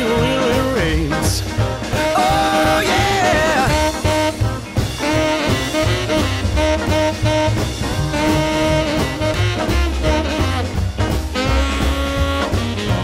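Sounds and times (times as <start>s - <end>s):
swing rock and roll music: 0.0s - 13.0s
horns playing held notes: 1.9s - 10.8s.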